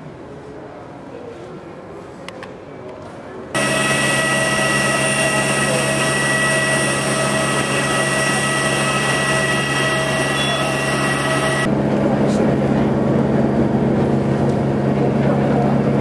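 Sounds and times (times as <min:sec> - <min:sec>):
low hum: 0:03.6 - 0:16.0
turbine whine: 0:03.6 - 0:16.0.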